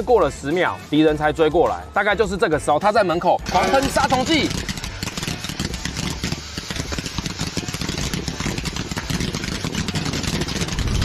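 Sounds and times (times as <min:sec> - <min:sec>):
low rumble of spray igniting: 0:04.5 - 0:11.0
crackling hiss of spray and sparks: 0:05.0 - 0:10.8.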